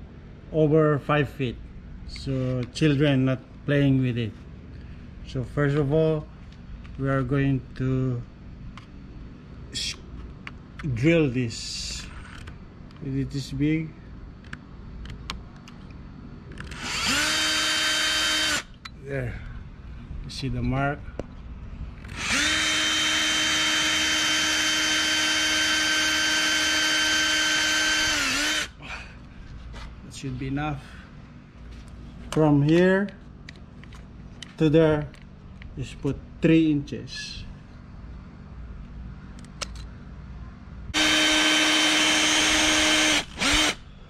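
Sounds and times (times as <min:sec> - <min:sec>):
electric drill boring wood: 0:16.7 - 0:18.7, 0:22.1 - 0:28.8, 0:41.0 - 0:43.8.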